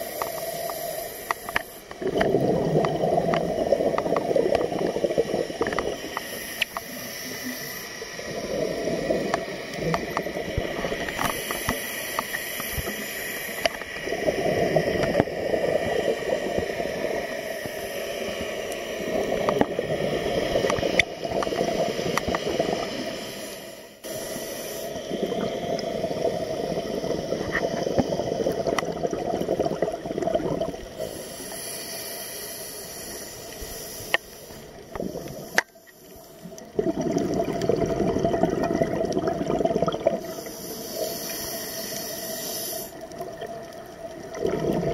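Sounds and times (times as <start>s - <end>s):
regulator bubbling exhaust underwater: 0.0s - 7.1s, 8.2s - 12.9s, 25.0s - 31.2s, 36.4s - 41.1s, 42.7s - 44.9s
regulator hissing: 5.5s - 14.0s.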